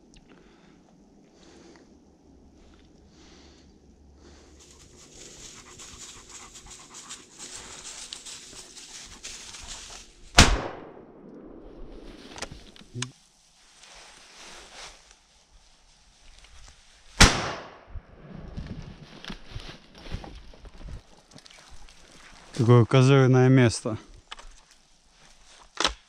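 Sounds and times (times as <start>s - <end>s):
dry leaves rustling underfoot: 4.3s - 10.4s, 12.0s - 17.2s, 18.6s - 22.6s, 24.4s - 25.8s
shotgun shot echoing: 10.3s - 12.1s, 17.2s - 17.8s.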